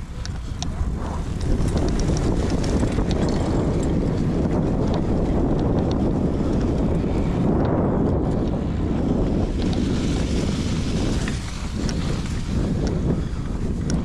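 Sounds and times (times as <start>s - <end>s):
bike rolling across grass: 0.0s - 14.0s
wind on microphone: 0.0s - 14.0s
light ticks: 0.1s - 4.0s, 4.8s - 6.0s, 9.6s - 9.8s, 11.2s - 13.1s, 13.8s - 14.0s.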